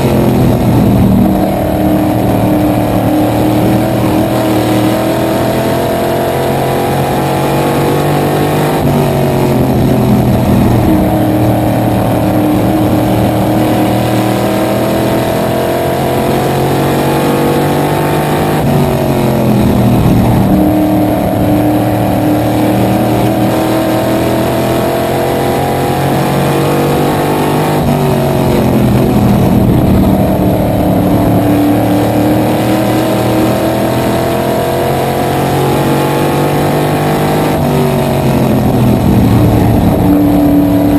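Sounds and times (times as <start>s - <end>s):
race car engine from cockpit: 0.0s - 40.9s.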